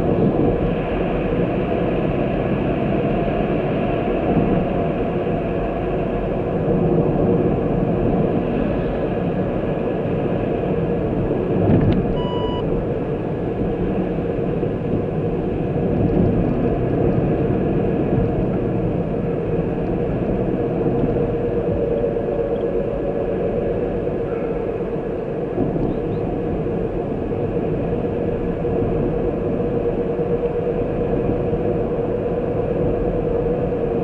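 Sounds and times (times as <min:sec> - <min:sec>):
car engine and road rumble: 0:00.0 - 0:34.0
short electronic beep: 0:12.1 - 0:12.7.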